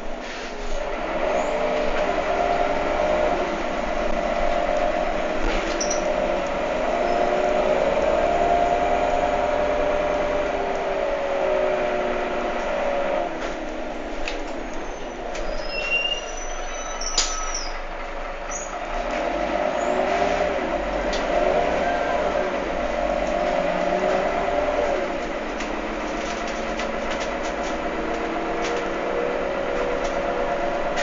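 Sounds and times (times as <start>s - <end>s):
bus engine drone: 0.0s - 31.0s
rattling clicks and squeaks: 5.4s - 7.3s, 14.2s - 17.8s, 25.2s - 29.0s.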